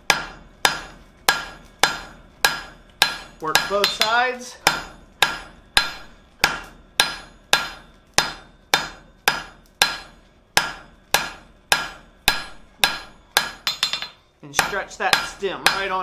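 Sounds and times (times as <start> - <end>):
hammer striking hot steel on anvil: 0.0 - 16.0.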